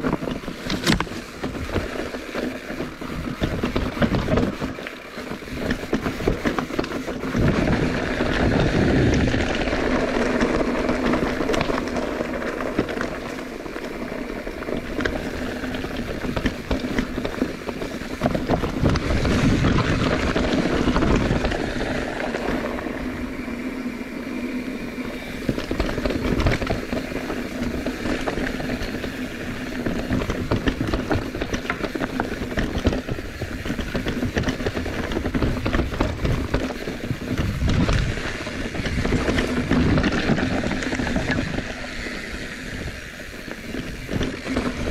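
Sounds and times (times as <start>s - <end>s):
bicycle tyre rumble: 0.0s - 44.9s
wind buffeting microphone: 0.0s - 44.9s.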